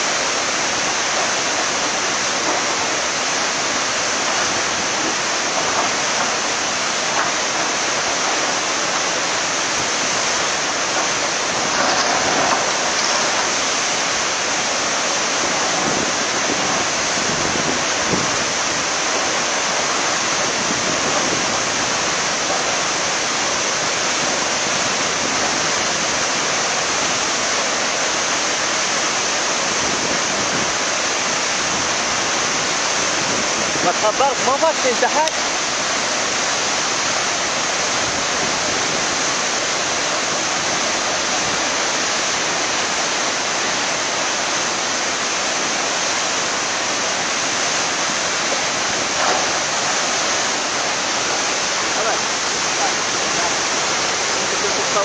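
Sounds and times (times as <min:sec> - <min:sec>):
floodwater rushing: 0:00.0 - 0:55.0.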